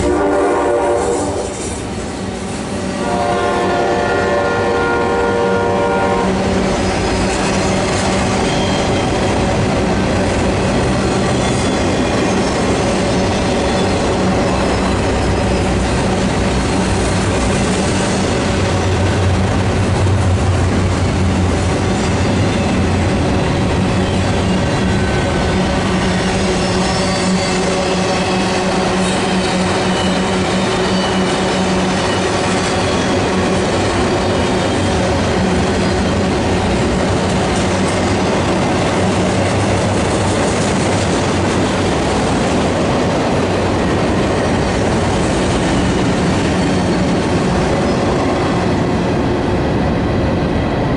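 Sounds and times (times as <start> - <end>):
train horn: 0.0 - 1.6, 3.0 - 6.4
train wheels rumbling on rail: 0.0 - 50.9.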